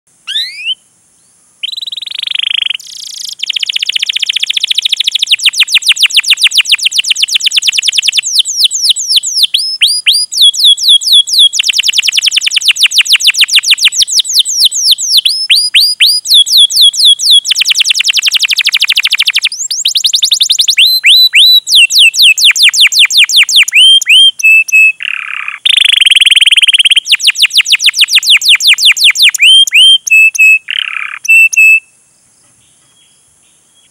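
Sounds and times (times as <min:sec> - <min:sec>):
canary singing trills: 0:00.3 - 0:00.8, 0:01.6 - 0:33.9.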